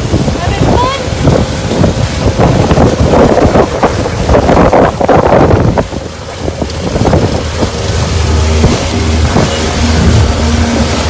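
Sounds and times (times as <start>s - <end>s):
boat wake rushing along hull: 0.0s - 11.0s
wind buffeting microphone: 0.0s - 11.0s.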